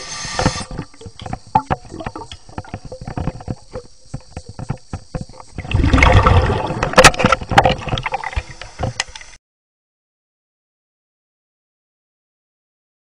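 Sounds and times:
underwater clicks and knocks: 0.4s - 9.3s
churning bubbling water: 0.5s - 8.6s.

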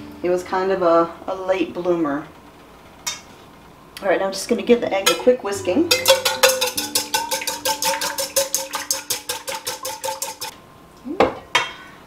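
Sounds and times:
wire whisk clinking in bowl: 5.9s - 10.5s.

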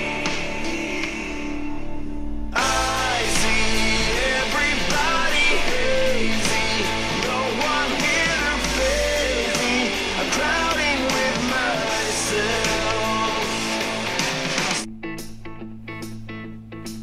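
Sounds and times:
rock song with singing and guitars: 0.0s - 14.9s.

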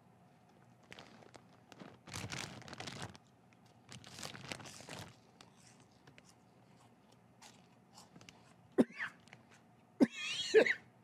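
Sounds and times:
chip bag crackling rustle: 0.6s - 6.4s.

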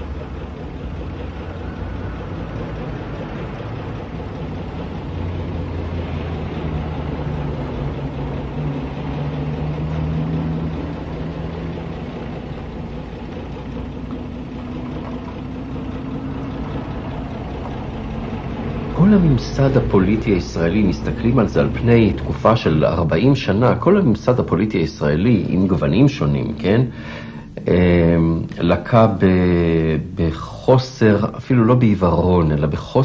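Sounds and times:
bus engine idling: 0.0s - 33.0s.

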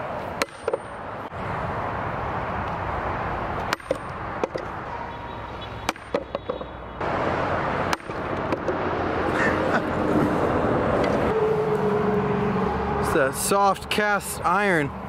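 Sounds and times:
sharp knocks: 3.7s - 4.7s, 5.8s - 6.7s.

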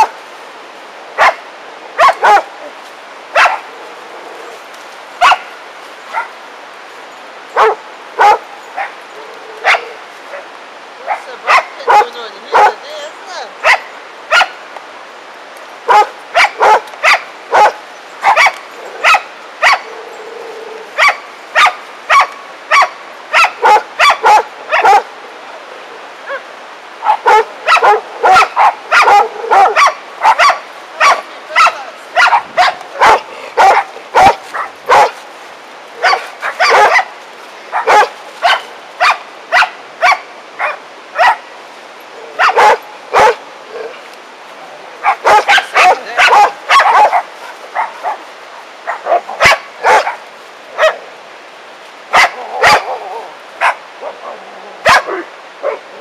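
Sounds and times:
dog barking: 1.2s - 1.4s, 2.0s - 2.5s, 3.4s - 3.7s, 5.2s - 5.5s, 6.1s - 6.4s, 7.6s - 8.9s, 9.6s - 10.4s, 11.1s - 12.8s, 13.6s - 14.6s, 15.9s - 19.9s, 21.0s - 25.1s, 27.0s - 35.2s, 36.0s - 37.1s, 37.7s - 41.4s, 42.4s - 44.0s, 45.0s - 48.2s, 48.8s - 50.2s, 50.8s - 51.0s, 52.1s - 55.8s.

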